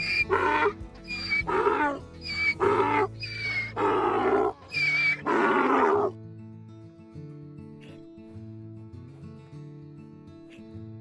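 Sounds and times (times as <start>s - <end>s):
donkey braying: 0.0s - 6.2s
background music: 0.0s - 9.6s.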